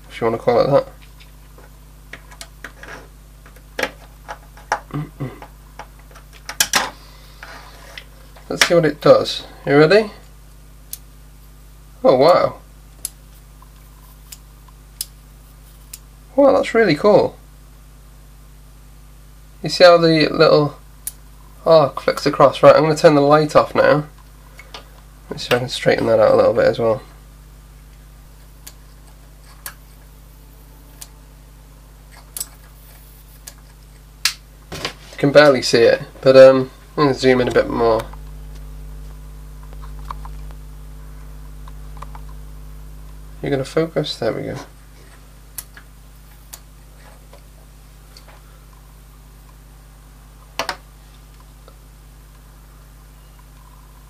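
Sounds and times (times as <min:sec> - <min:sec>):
low electrical hum: 0:00.0 - 0:54.0
sharp electrical clicks: 0:03.4 - 0:06.9, 0:10.5 - 0:11.6, 0:12.2 - 0:16.2, 0:20.9 - 0:23.2, 0:27.8 - 0:31.4, 0:32.1 - 0:40.8, 0:41.4 - 0:44.8, 0:45.4 - 0:46.7.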